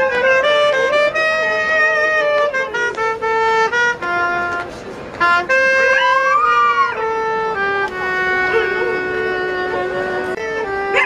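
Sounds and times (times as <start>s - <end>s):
clarinet melody: 0.0s - 11.0s
dog howling: 5.9s - 7.0s.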